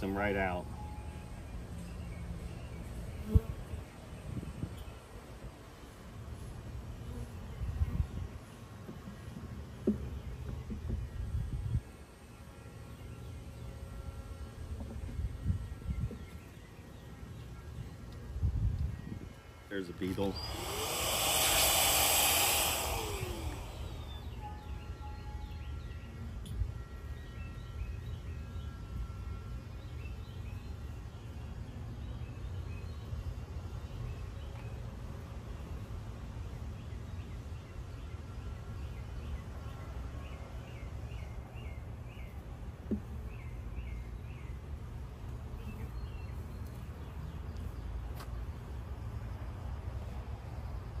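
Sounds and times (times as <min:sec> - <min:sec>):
birds chirping: 0:19.7 - 0:25.0.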